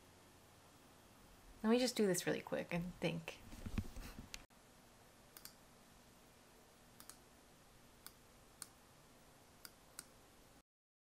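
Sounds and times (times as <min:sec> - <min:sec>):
computer mouse clicks: 0:05.4 - 0:05.6, 0:07.0 - 0:07.2, 0:09.6 - 0:10.2.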